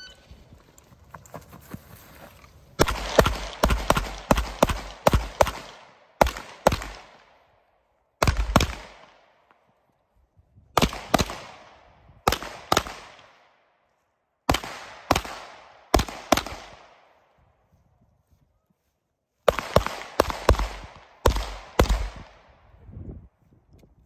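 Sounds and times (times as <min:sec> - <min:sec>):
pistol shots echoing: 0:02.8 - 0:07.4, 0:08.2 - 0:09.4, 0:10.8 - 0:13.5, 0:14.5 - 0:17.0, 0:19.5 - 0:22.4.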